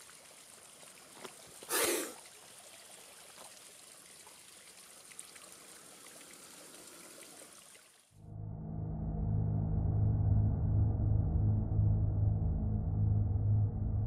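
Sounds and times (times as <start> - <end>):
trickling water-like hiss: 0.0 - 8.2.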